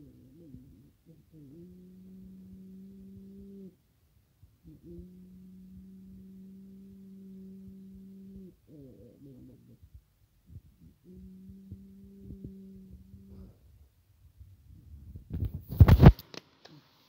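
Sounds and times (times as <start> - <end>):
steady low hum: 0.0 - 16.8
rubbing against phone microphone: 14.3 - 16.3.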